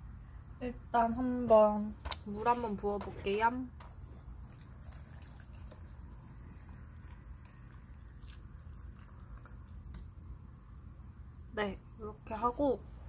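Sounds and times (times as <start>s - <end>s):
water pouring into cup: 4.3s - 10.2s.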